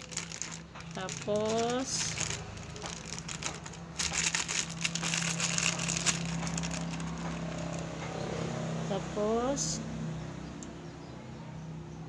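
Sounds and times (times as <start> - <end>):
plastic bag crinkling: 0.0 - 8.1.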